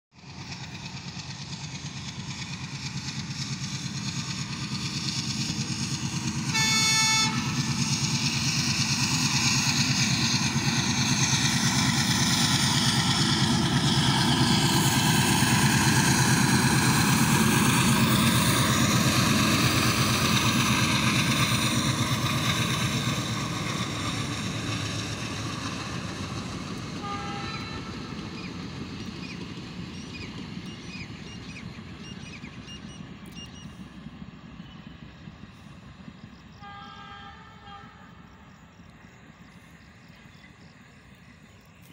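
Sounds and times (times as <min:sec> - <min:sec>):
train passing: 0:00.1 - 0:41.9
train horn: 0:06.4 - 0:07.9, 0:27.0 - 0:28.2, 0:36.5 - 0:38.5.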